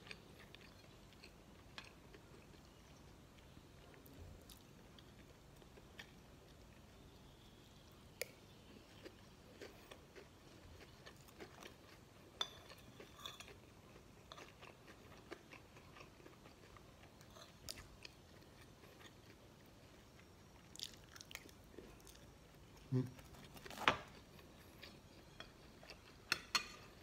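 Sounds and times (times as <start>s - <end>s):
person chewing: 0.0s - 27.0s
cutlery clinking on a plate: 12.4s - 13.5s, 26.3s - 27.0s.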